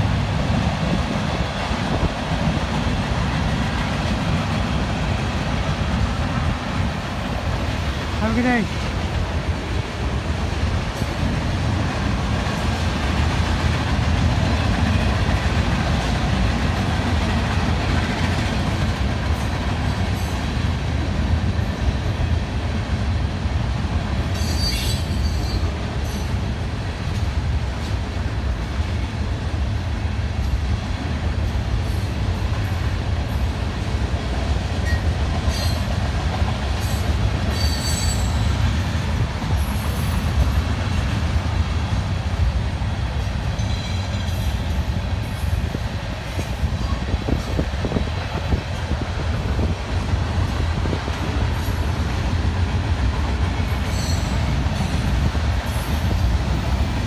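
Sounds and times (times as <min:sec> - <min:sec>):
train wheels rumbling on rail: 0:00.0 - 0:57.0
high wheel squeals: 0:37.5 - 0:38.5, 0:53.8 - 0:54.5.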